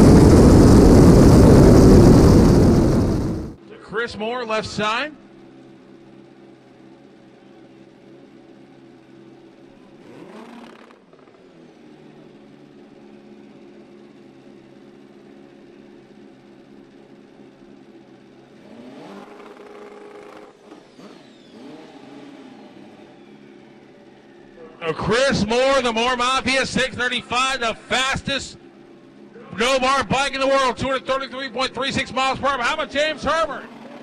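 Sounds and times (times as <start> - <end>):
engine idling: 0.0 - 3.6, 5.2 - 10.2, 10.8 - 18.7, 22.5 - 34.0
vehicles revving or passing: 9.8 - 13.7, 18.0 - 34.0.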